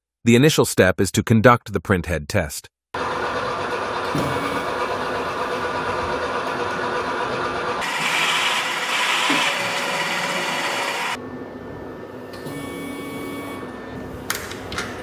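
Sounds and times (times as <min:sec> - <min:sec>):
printer film feed whir: 0:03.0 - 0:11.2
printhead carriage whirring: 0:03.0 - 0:11.2.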